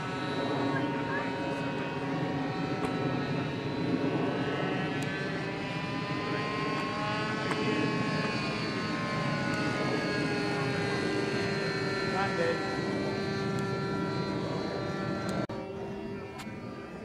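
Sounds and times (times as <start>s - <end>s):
model aeroplane engines droning: 0.0s - 17.0s.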